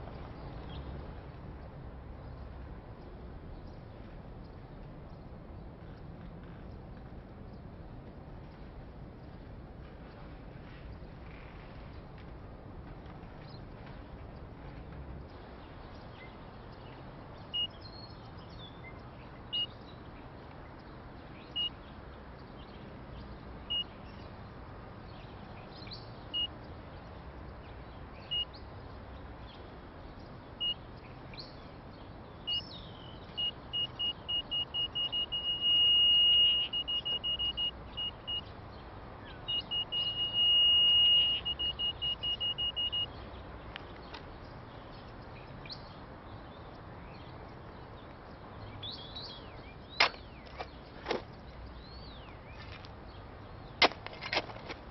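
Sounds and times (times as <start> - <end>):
high-pitched electronic beeping: 33.4 - 38.5, 39.5 - 43.1.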